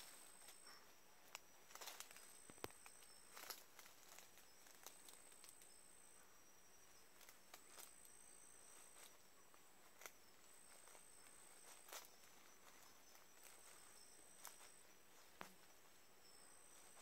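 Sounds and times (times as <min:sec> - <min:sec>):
high insect trill: 0:00.0 - 0:17.0.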